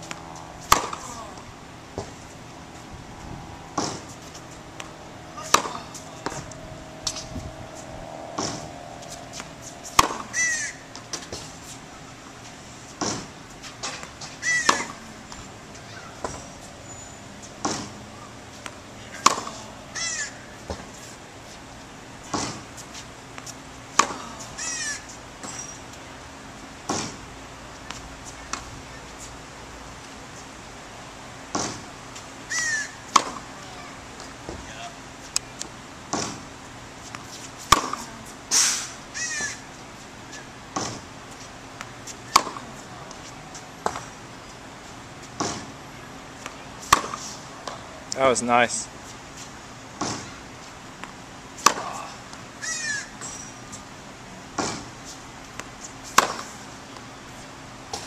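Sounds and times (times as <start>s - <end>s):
tennis racket hitting ball: 0.0s - 2.2s, 3.7s - 11.8s, 13.0s - 16.5s, 17.4s - 21.1s, 22.2s - 22.7s, 23.9s - 25.6s, 32.6s - 33.6s, 37.1s - 38.6s, 41.8s - 44.1s, 45.2s - 45.7s, 46.4s - 47.8s, 51.0s - 52.1s, 54.5s - 54.9s, 55.6s - 56.7s
short high squeals: 7.0s - 11.8s, 14.4s - 15.0s, 15.8s - 17.5s, 24.5s - 25.9s, 32.5s - 33.0s, 38.5s - 39.7s, 52.0s - 53.6s.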